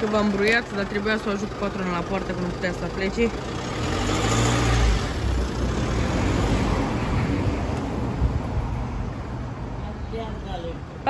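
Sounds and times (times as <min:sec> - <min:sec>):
diesel engine running: 0:00.0 - 0:08.3.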